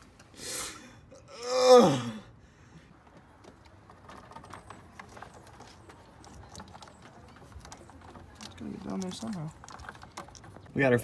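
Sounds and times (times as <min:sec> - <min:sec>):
man groaning: 0:01.2 - 0:02.3
handling noise on engine parts: 0:02.9 - 0:11.0.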